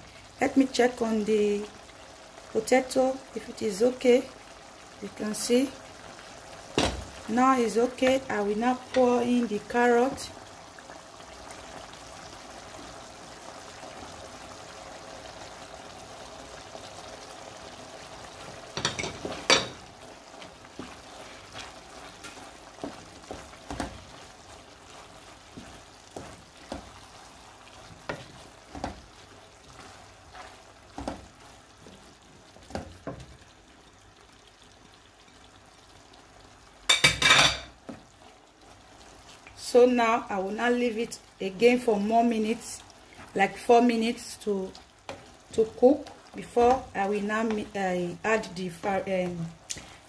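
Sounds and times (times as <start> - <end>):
pot bubbling on stove: 0.0 - 50.0
spoon stirring and knocking pot: 18.8 - 19.8, 36.9 - 38.0.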